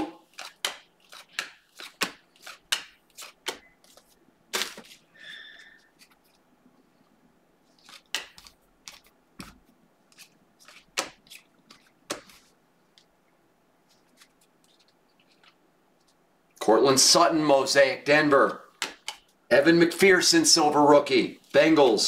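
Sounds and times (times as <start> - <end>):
trading cards flipping: 0.2 - 6.4, 7.7 - 13.1, 13.8 - 16.2.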